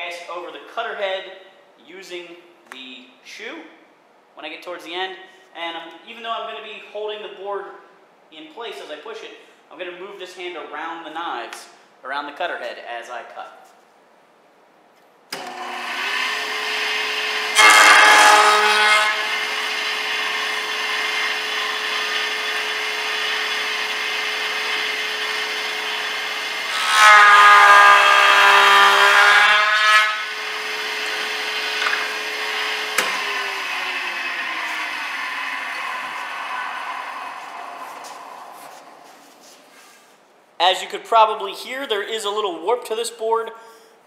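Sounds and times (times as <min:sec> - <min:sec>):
jointer cutting wood: 0:15.3 - 0:39.1
jointer motor humming: 0:15.4 - 0:39.1.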